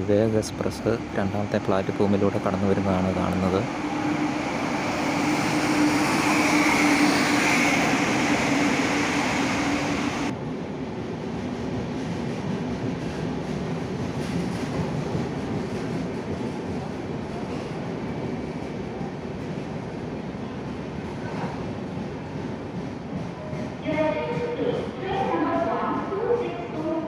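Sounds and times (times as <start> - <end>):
locomotive humming: 0.0 - 10.3
train coaches rumbling past: 0.0 - 27.0.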